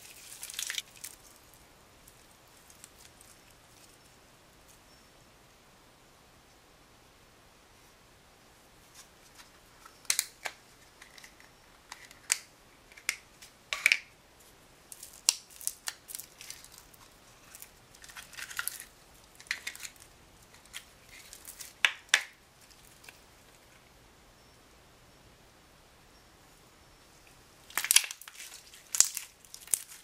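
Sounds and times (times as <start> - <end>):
crinkling rustles: 0.0 - 4.8, 14.4 - 23.8, 27.7 - 30.0.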